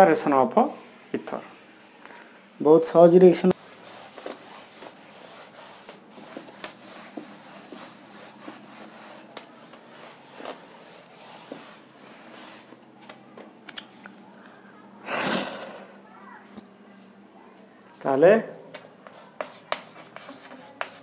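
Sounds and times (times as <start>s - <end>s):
cloth scrubbing blackboard: 3.5s - 12.8s, 18.8s - 21.0s.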